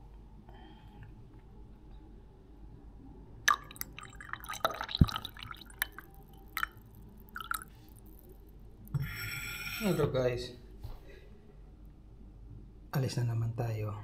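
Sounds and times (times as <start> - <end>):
coffee pouring into mug: 3.5 - 8.5
drips falling into cup: 3.5 - 9.1.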